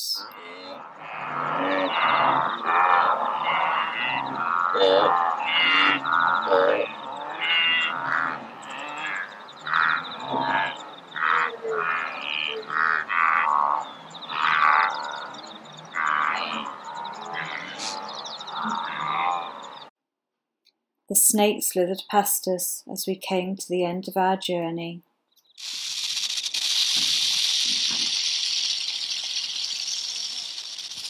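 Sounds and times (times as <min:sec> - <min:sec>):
wildebeest grunting calls: 0:00.3 - 0:19.9.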